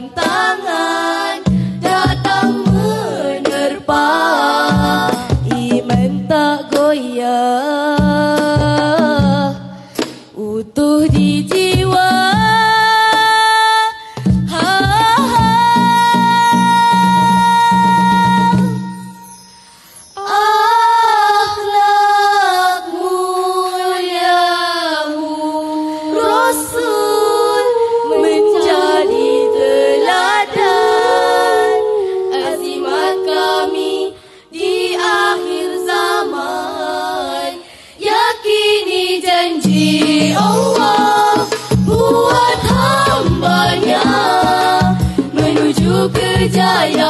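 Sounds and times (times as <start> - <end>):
low percussion: 0.0 - 7.0, 14.2 - 20.2, 39.6 - 47.0
women singing in harmony: 0.0 - 47.0.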